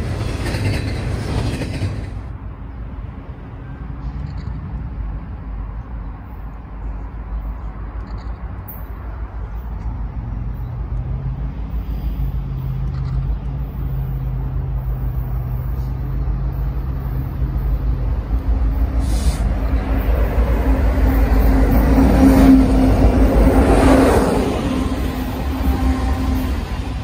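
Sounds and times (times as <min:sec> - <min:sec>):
diesel locomotive engines droning: 0:00.0 - 0:27.0
wheel and rail rumble: 0:00.0 - 0:27.0.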